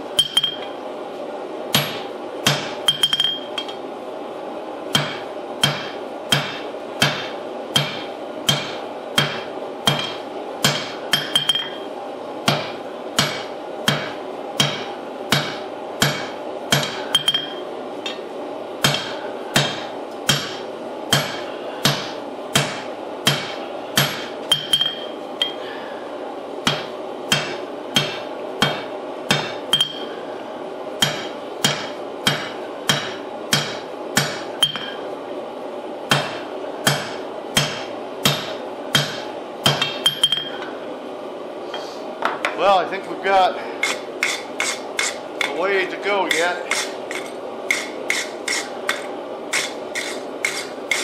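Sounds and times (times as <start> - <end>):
hammer striking steel on anvil: 0.2 - 0.7, 1.7 - 3.8, 4.9 - 11.9, 12.5 - 18.2, 18.8 - 25.6, 26.6 - 30.1, 31.0 - 35.0, 36.1 - 40.6, 43.8 - 45.6, 46.2 - 51.0.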